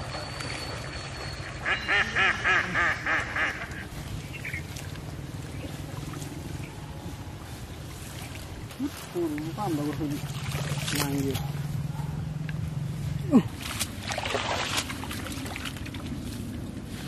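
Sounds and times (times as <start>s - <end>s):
quiet outdoor background: 0.0s - 17.0s
duck quacking: 1.6s - 3.8s.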